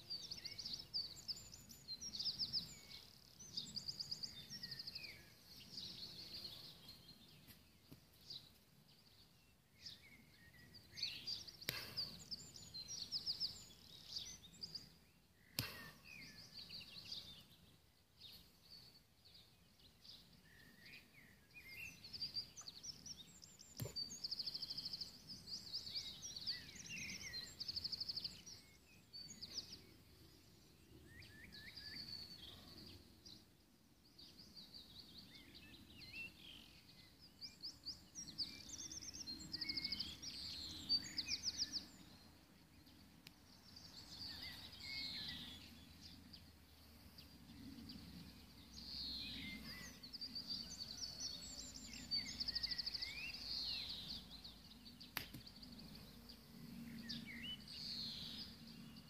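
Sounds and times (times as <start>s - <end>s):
songbirds chirping and trilling: 0.0s - 59.0s.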